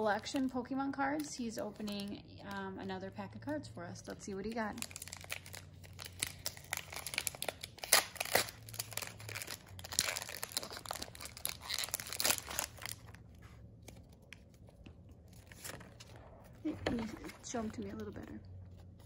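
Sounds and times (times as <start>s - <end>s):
foil pack crinkling and tearing: 4.5s - 13.2s.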